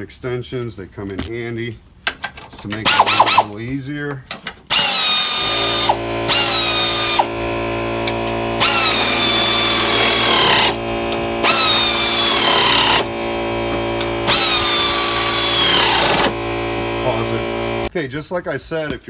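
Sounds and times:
air ratchet hissing and whining: 2.8s - 3.6s, 4.7s - 17.9s
steady low hum: 4.8s - 18.0s.

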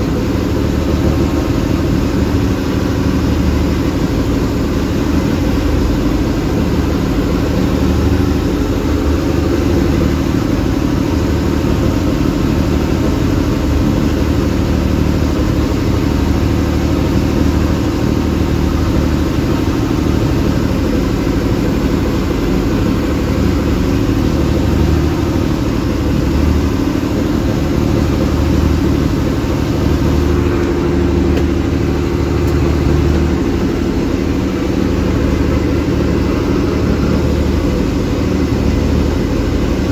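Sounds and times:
boat engine running: 0.0s - 39.9s
water wash: 0.0s - 39.9s.

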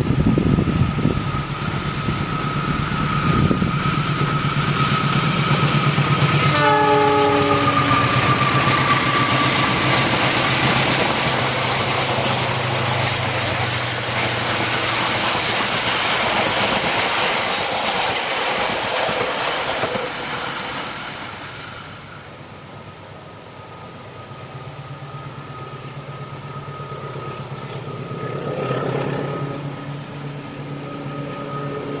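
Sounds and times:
locomotive engine hum: 0.0s - 32.0s
train wheels rumbling on rail: 0.0s - 32.0s
high wheel squeal: 0.1s - 22.4s.

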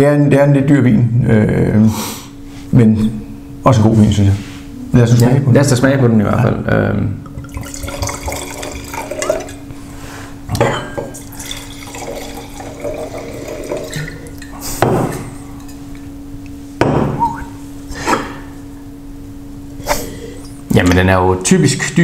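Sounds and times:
wine pouring into glass: 7.3s - 9.6s, 10.5s - 14.6s
glass knocking on glass: 16.8s - 17.2s.

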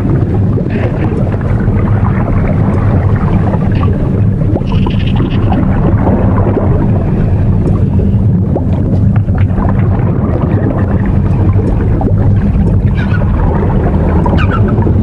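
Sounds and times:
underwater rumble: 0.0s - 15.0s
dolphin chirps: 4.6s - 5.6s
dolphin clicks: 4.6s - 5.6s.

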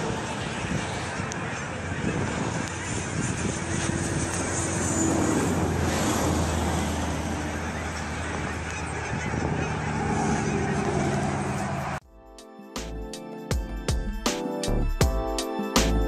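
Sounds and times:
geese honking: 0.0s - 12.0s.

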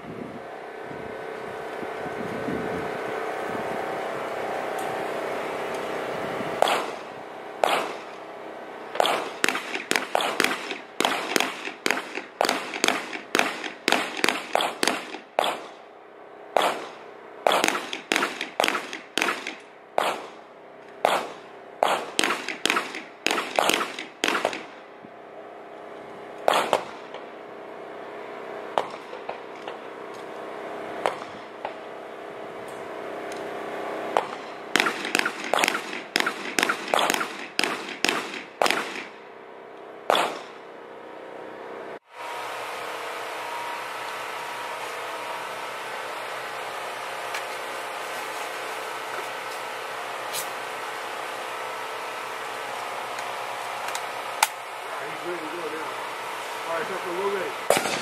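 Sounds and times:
pistol shots: 6.6s - 8.2s, 9.0s - 15.8s, 16.6s - 20.4s, 21.0s - 24.8s, 26.4s - 27.2s, 34.2s - 39.2s, 40.1s - 40.6s, 57.7s - 58.0s.

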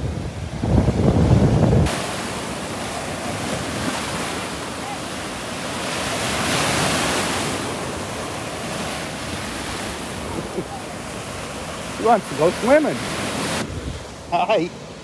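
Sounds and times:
wind buffeting microphone: 0.0s - 2.1s, 12.7s - 14.2s
surf washing up sand: 0.0s - 15.0s.

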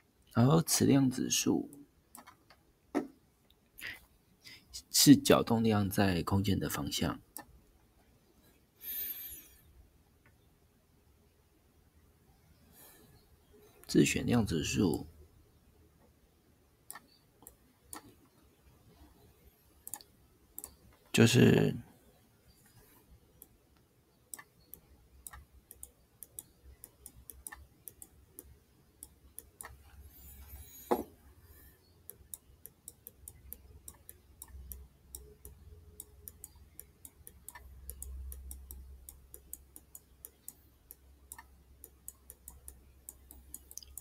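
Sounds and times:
stylus tapping on tablet screen: 30.4s - 31.2s.

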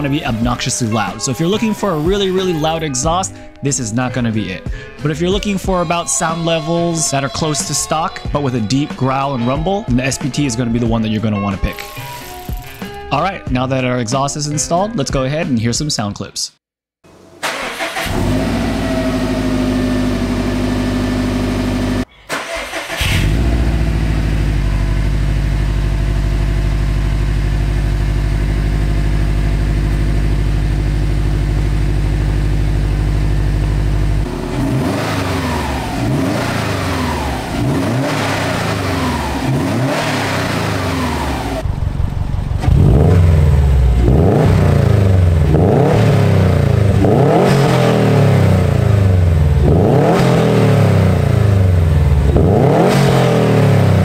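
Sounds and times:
car engine idling: 17.1s - 54.0s
car engine revving: 17.1s - 54.0s.

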